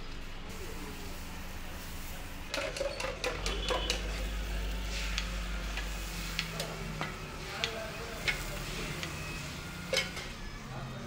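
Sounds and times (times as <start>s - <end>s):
steel utensils clinking on cups: 2.5s - 4.4s, 9.8s - 10.3s.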